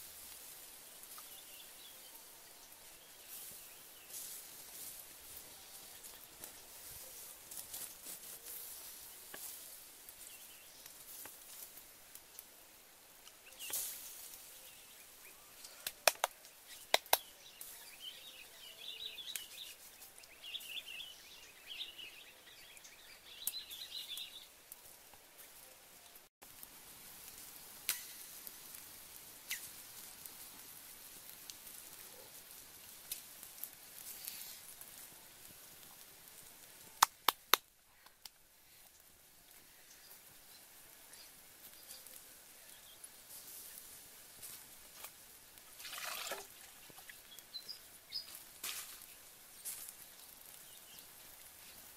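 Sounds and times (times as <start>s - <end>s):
woodland ambience: 0.0s - 51.9s
bird chirping: 16.6s - 24.5s, 46.6s - 48.4s.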